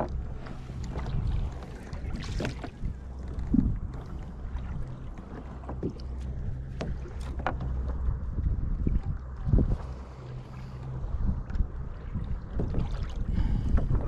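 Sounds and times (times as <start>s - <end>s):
steady low rumble: 0.0s - 14.0s
water splashing against kayak hull: 0.0s - 14.0s.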